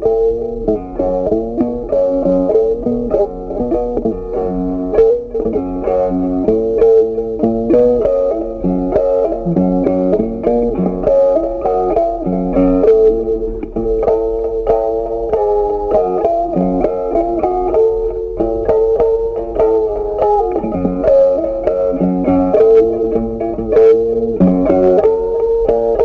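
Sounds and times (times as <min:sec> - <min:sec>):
plucked guitar melody: 0:00.0 - 0:26.0.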